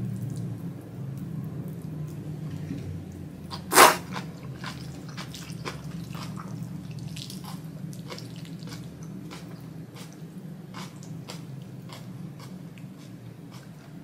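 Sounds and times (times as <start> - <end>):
wet chewing clicks: 3.5 - 14.0.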